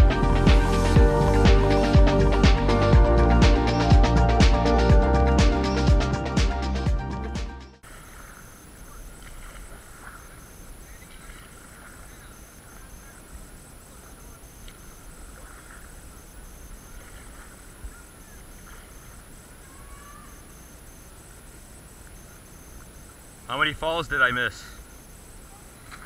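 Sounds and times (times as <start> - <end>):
water noise: 7.8 - 26.0.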